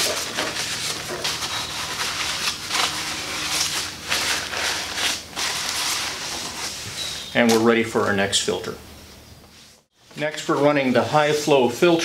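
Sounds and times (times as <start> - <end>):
paper towel rubbing metal: 0.0 - 7.2.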